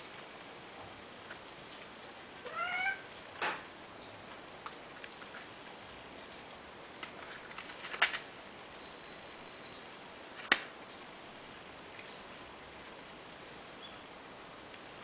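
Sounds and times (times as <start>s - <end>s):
cat meowing: 2.4s - 3.1s.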